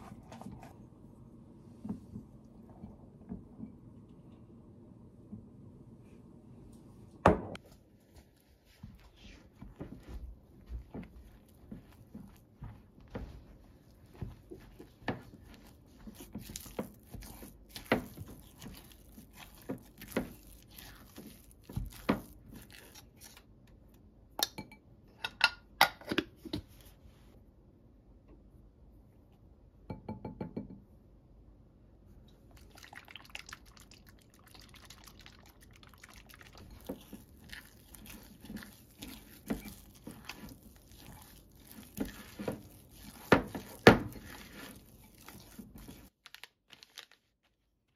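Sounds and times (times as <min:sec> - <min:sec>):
spatula scraping glass bowl: 0:36.6 - 0:46.1.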